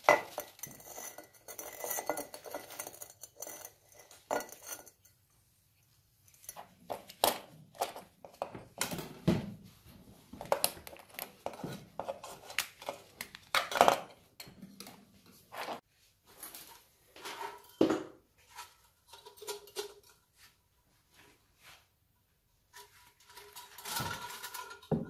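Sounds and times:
metal lantern parts clinking: 0.0 - 5.2, 23.3 - 24.9.

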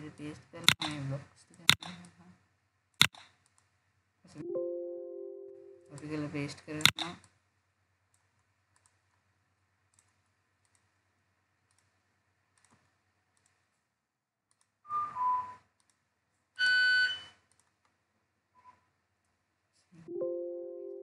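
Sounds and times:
faint mouse clicks: 3.0 - 3.7, 8.1 - 9.2, 9.9 - 11.0, 11.6 - 13.8, 14.5 - 14.7, 15.8 - 16.0, 17.5 - 18.0.

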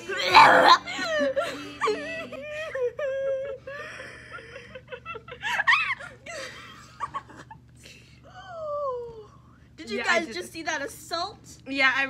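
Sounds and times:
girls laughing and giggling: 0.0 - 7.7.

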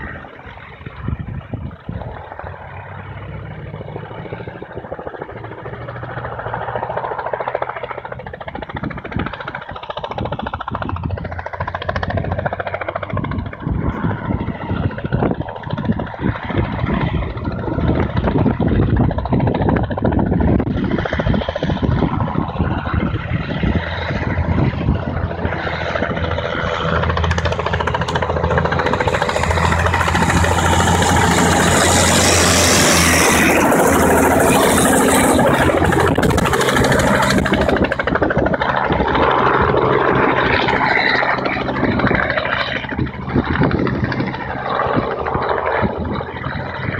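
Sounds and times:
armored vehicle engine: 0.0 - 46.9
helicopter rotor and engine: 0.0 - 46.9.

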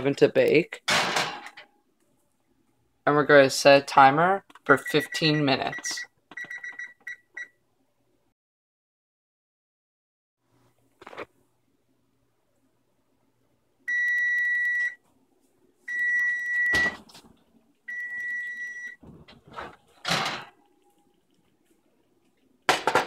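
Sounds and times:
oven timer beeping: 13.9 - 15.0, 15.9 - 17.0, 17.9 - 19.0.

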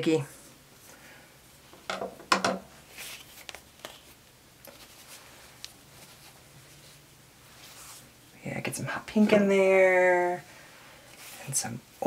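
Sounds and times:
fabric rustling: 2.7 - 8.3
cloth scraping: 4.7 - 8.2.

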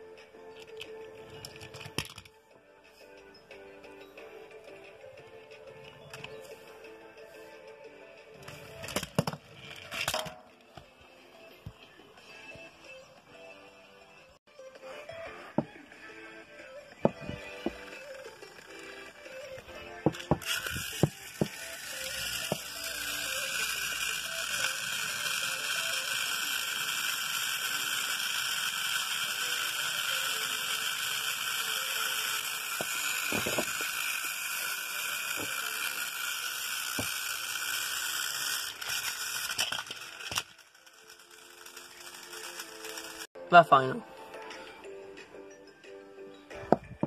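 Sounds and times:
toy train motors whirring: 0.4 - 2.4, 4.5 - 10.3, 15.6 - 43.3
toy trains clattering: 0.5 - 2.4, 8.4 - 10.7, 17.3 - 19.1, 20.0 - 43.3.

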